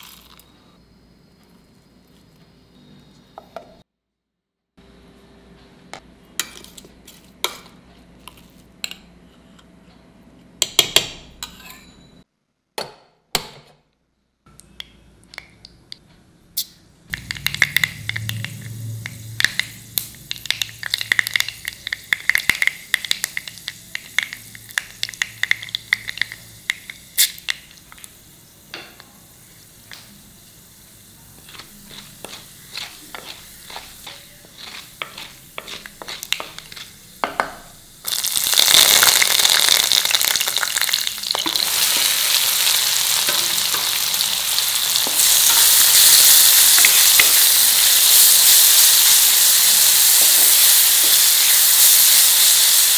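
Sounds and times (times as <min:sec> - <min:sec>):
mustard seeds crackling in hot oil: 0:00.0 - 0:00.6, 0:16.6 - 0:52.9.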